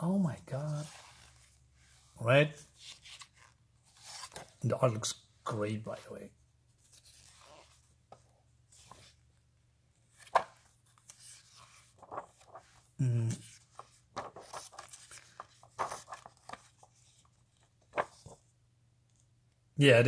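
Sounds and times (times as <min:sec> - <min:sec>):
comic book pages rustling: 0:00.5 - 0:02.1, 0:02.7 - 0:04.6, 0:06.7 - 0:09.4, 0:10.0 - 0:18.5
man murmuring: 0:13.0 - 0:13.5.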